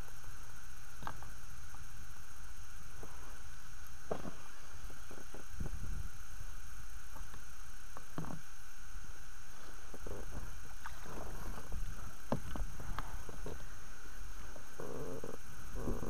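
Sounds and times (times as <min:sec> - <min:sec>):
steady low rumble: 0:00.4 - 0:07.8.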